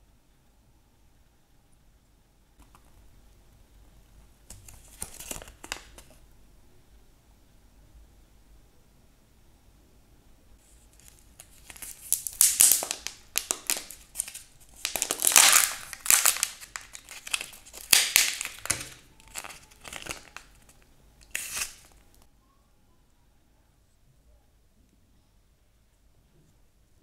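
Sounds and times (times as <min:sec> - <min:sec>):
plastic wrapper crinkling and tearing: 0:04.5 - 0:06.2, 0:10.9 - 0:22.3.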